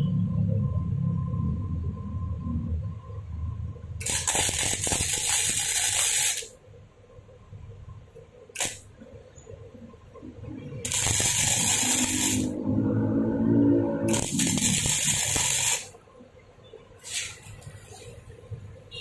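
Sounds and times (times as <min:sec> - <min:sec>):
welding arc sizzling: 0:04.0 - 0:06.6, 0:08.5 - 0:09.0, 0:10.7 - 0:13.2, 0:13.8 - 0:16.0.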